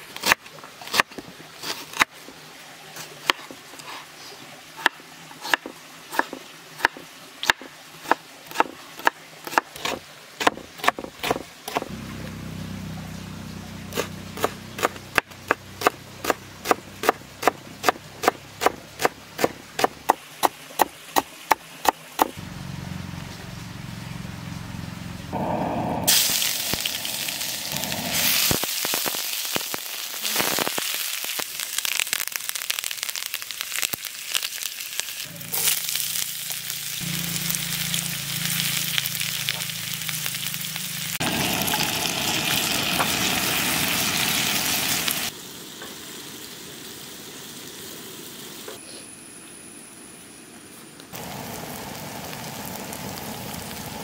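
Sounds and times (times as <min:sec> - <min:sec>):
knife chopping on wooden board: 0:05.5 - 0:11.9
hot oil sizzling in pan: 0:26.1 - 0:48.7, 0:51.2 - 0:54.0.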